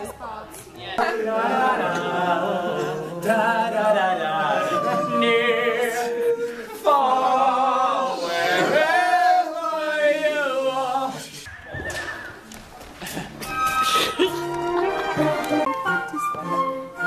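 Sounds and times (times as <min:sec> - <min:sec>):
men singing in chorus: 0:01.0 - 0:11.4.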